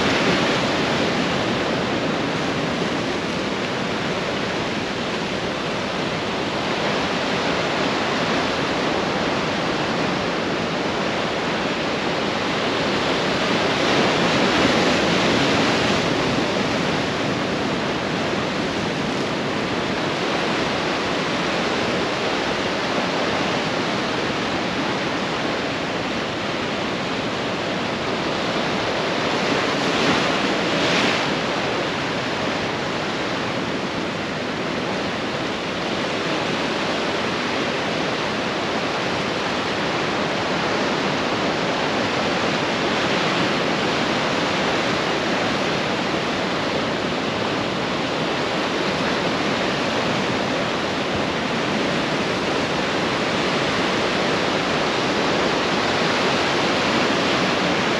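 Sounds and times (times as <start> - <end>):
ocean surf washing in: 0.0 - 57.9
wave breaking: 0.0 - 57.9.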